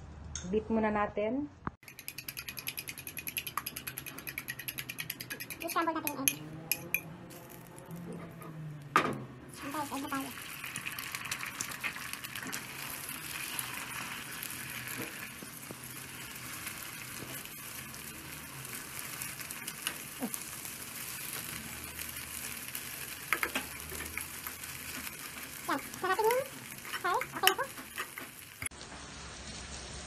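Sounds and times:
egg sizzling in hot oil: 1.8s - 7.9s, 9.5s - 30.0s
spatula scraping and tapping pan: 1.8s - 8.6s, 23.2s - 28.7s.

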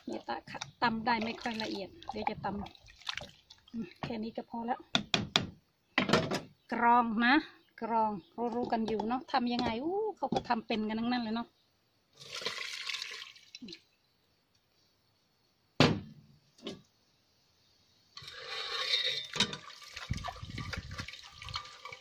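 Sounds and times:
liquid sloshing: 0.0s - 4.2s, 19.2s - 22.0s
liquid pouring and splashing: 1.0s - 4.1s, 12.2s - 13.8s, 19.2s - 22.0s
sharp knock: 15.8s - 16.2s
ladle stirring and scraping: 18.2s - 22.0s.

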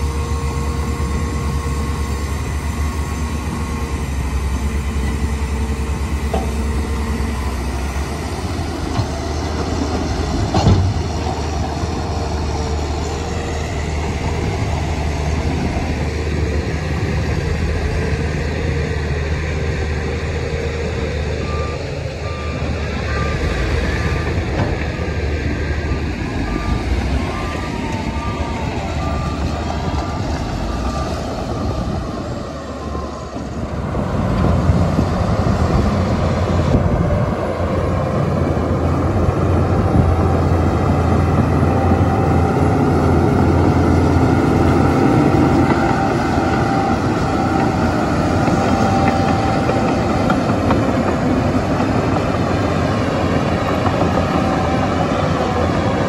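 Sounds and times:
diesel engines running: 0.0s - 56.0s
reversing alarm beeping: 20.8s - 34.1s.

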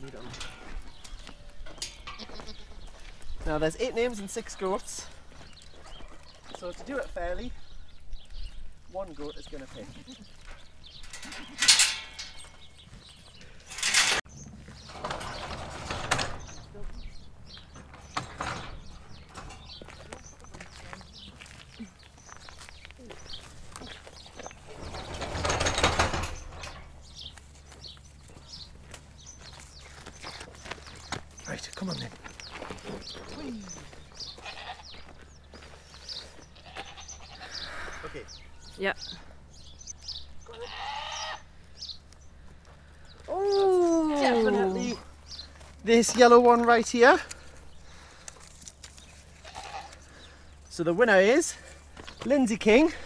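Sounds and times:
goats bleating: 1.9s - 2.9s, 33.4s - 35.1s, 36.2s - 38.6s, 40.4s - 41.6s, 44.0s - 45.0s, 49.3s - 50.2s.

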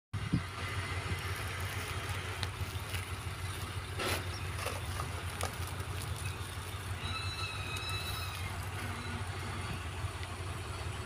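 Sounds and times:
machinery rumble: 0.2s - 11.0s
thin high squeal: 7.0s - 9.8s.

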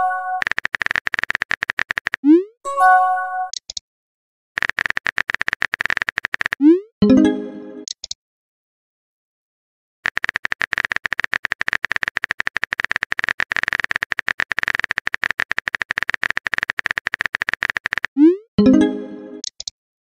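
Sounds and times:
phone keyboard typing clicks: 0.4s - 2.3s, 3.5s - 3.8s, 4.6s - 6.6s, 7.8s - 8.2s, 10.0s - 18.2s, 19.4s - 19.7s.

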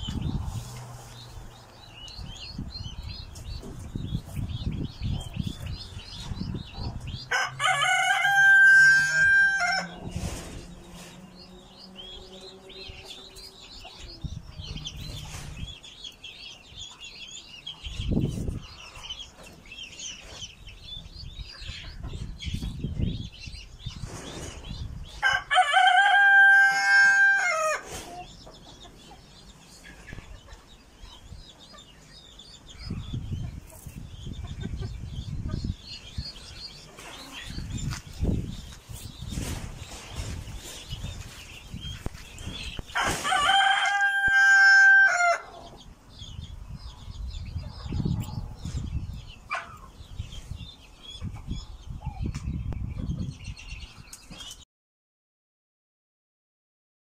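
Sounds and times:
chicks peeping: 0.0s - 54.6s
rooster crowing: 7.3s - 10.0s, 25.2s - 27.8s, 43.0s - 45.6s.

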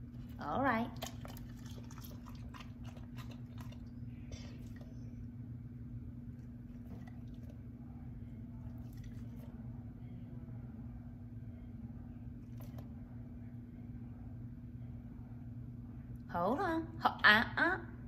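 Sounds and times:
dog chewing: 0.0s - 5.3s, 6.3s - 7.8s, 8.4s - 9.6s
steady low hum: 0.0s - 18.0s.

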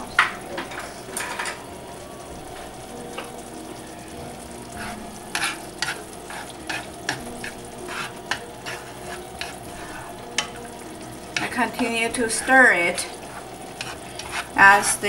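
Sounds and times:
noodles sizzling and bubbling: 0.0s - 15.0s
utensils scraping a pan: 4.6s - 15.0s.

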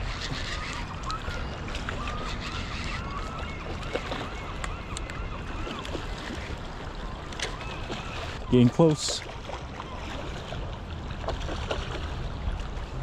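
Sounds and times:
wind rumbling on microphone: 0.0s - 8.4s.

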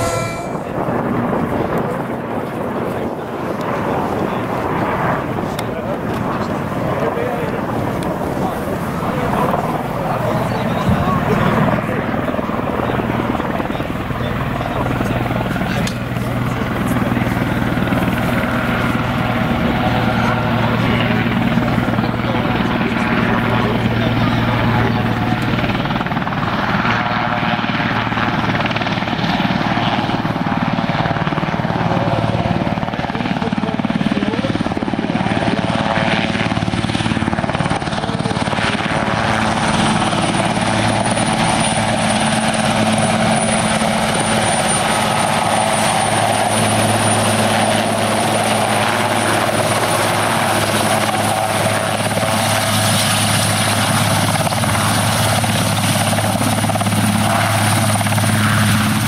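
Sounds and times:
high thin turbine whine: 0.0s - 2.2s
helicopter rotor and engines: 0.0s - 59.0s.

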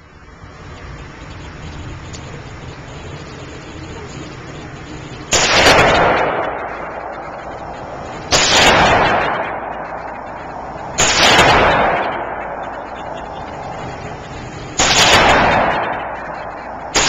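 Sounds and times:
pistol shots echoing: 5.3s - 17.0s.

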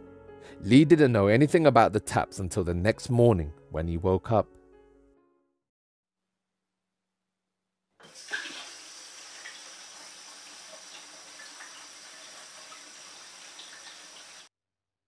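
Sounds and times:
tap water running into sink: 8.0s - 14.5s.

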